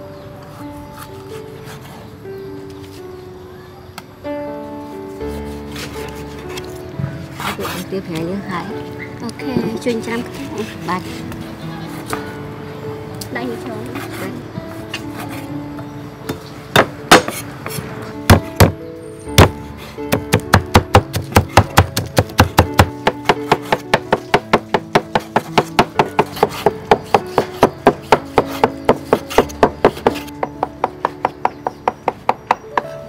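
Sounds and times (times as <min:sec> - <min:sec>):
background music: 0:00.0 - 0:33.0
knife chopping on cutting board: 0:19.4 - 0:30.3.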